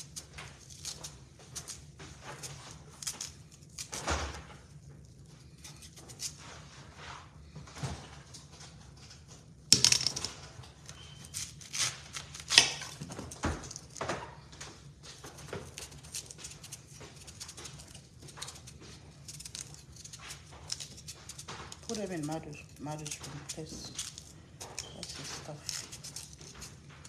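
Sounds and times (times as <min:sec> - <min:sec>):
knife cutting and scraping yam: 0:00.0 - 0:04.7, 0:05.3 - 0:07.0, 0:10.8 - 0:14.0, 0:15.2 - 0:27.0.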